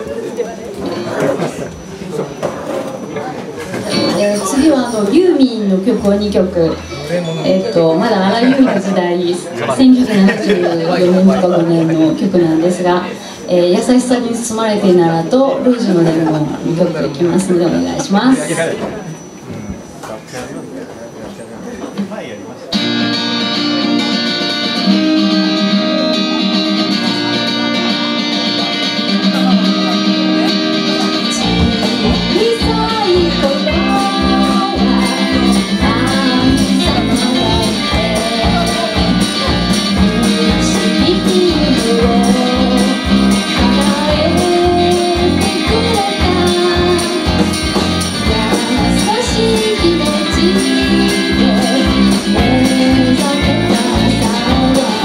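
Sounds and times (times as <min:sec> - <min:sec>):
guitars playing: 0:03.7 - 0:18.7, 0:22.7 - 0:55.0
bass and drums: 0:29.2 - 0:55.0
woman singing: 0:31.0 - 0:55.0.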